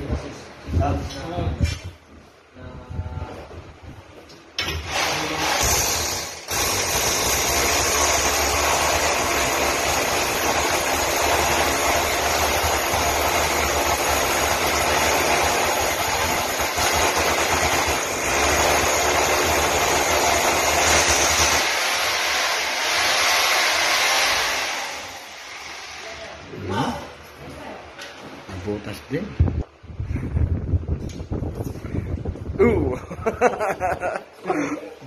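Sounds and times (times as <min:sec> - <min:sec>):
rotary hammer drill boring wall: 0:04.6 - 0:26.3.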